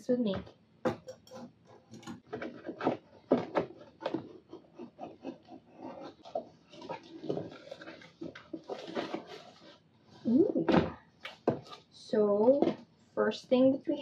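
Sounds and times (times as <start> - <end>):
cardboard rustling and crackling: 1.4 - 9.9.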